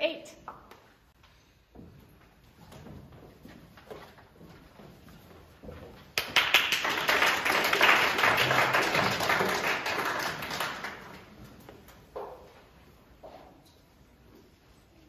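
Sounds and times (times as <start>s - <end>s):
audience applauding: 6.2s - 11.4s.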